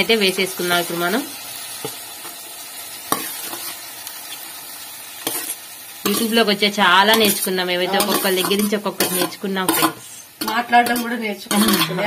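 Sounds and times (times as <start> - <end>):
soft frying sizzle: 0.0 - 12.0
spoon scraping steel plate: 7.1 - 12.0.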